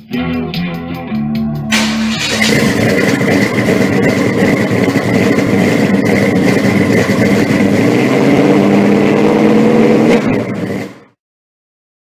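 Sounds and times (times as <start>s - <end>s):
car engine running loud: 1.7s - 11.2s.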